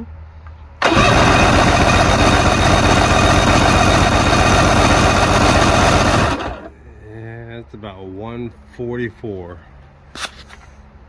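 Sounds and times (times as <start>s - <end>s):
outboard motor cranking chug: 0.8s - 6.7s.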